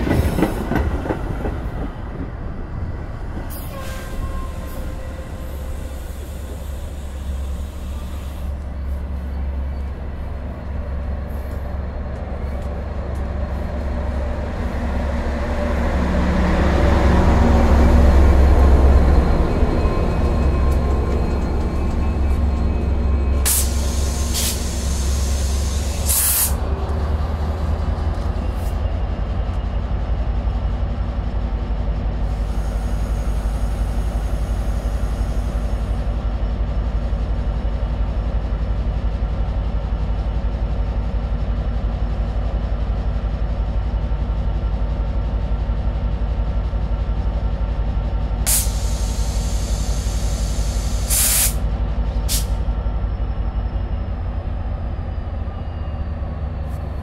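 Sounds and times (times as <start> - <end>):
diesel locomotive idling: 4.2 - 57.0
air hisses: 23.5 - 26.6, 48.5 - 51.6.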